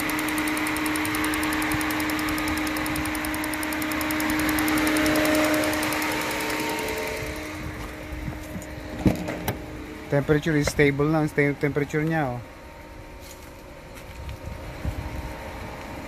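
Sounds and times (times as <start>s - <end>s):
fast light ticking: 0.0s - 7.4s
engine hiss: 0.0s - 8.1s
car engine idling: 0.0s - 16.0s.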